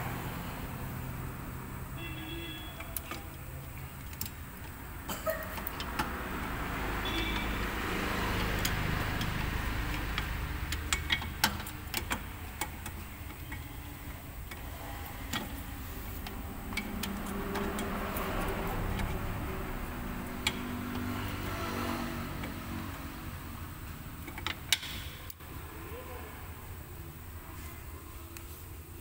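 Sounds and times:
metallic clicks of brake parts: 2.0s - 21.4s, 23.8s - 25.4s
steady low rumble: 13.8s - 21.6s.

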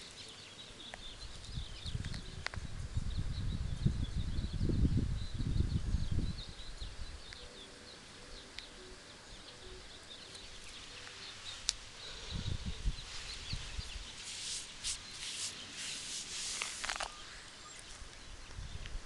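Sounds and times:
small birds chirping: 0.0s - 19.0s
rustling and scraping: 13.0s - 18.1s.

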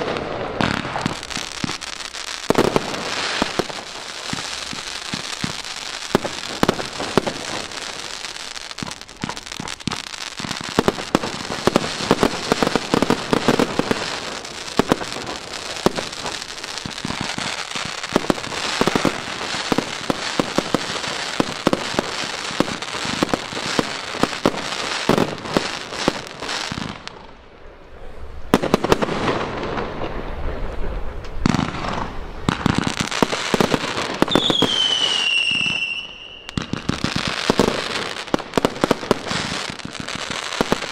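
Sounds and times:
fireworks bangs and crackling: 0.0s - 40.9s
firework whistle falling in pitch: 34.3s - 36.7s.

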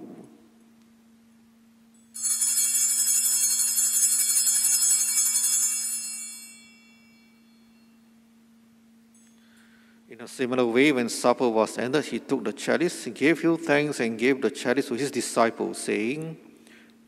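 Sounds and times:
altar bells ringing: 2.0s - 8.1s.

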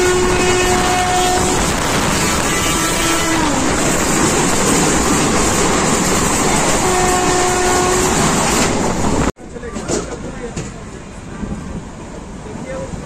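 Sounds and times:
train horn: 0.0s - 3.7s, 6.6s - 8.6s
train running on rails: 0.0s - 13.0s.

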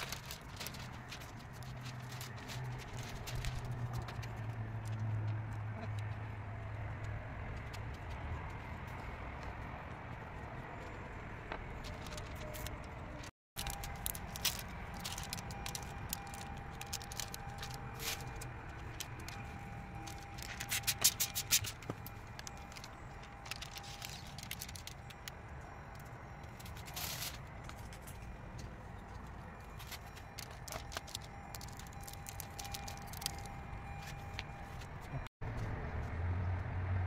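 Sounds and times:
sharp clicks and crackles: 11.8s - 28.2s, 29.8s - 34.9s.

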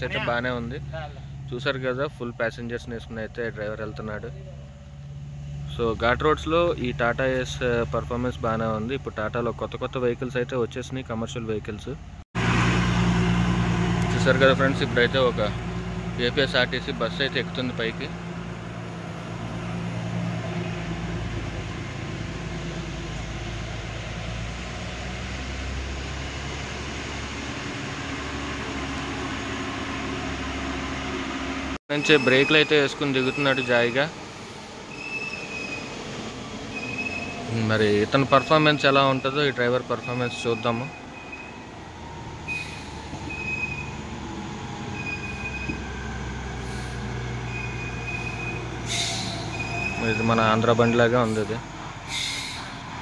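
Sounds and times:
bus diesel engine under load: 0.0s - 53.0s
lorry brakes squealing: 13.6s - 23.5s, 31.9s - 53.0s.

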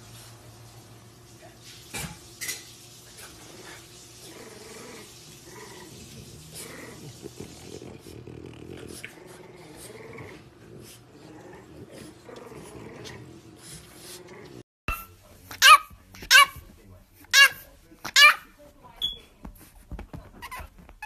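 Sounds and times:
dogs growling and grunting: 3.2s - 14.6s.

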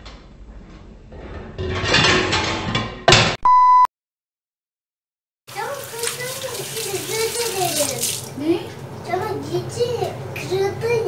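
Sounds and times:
steady high beep: 3.5s - 3.9s.

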